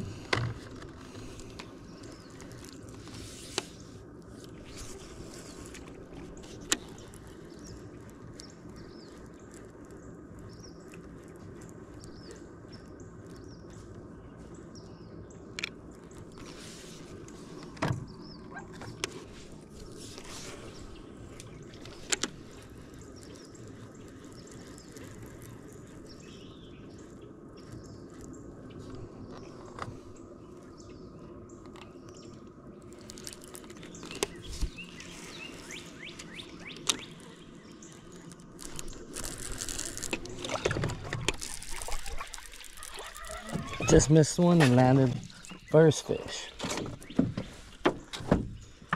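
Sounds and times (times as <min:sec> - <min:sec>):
birds chirping: 0:00.0 - 0:48.9
steady low hum: 0:00.0 - 0:48.9.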